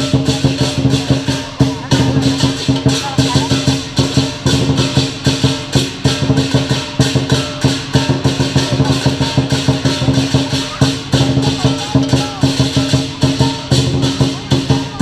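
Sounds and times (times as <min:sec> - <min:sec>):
big drum beating fast rhythm: 0:00.0 - 0:15.0
cymbals clashing: 0:00.0 - 0:15.0
gongs ringing: 0:00.0 - 0:15.0.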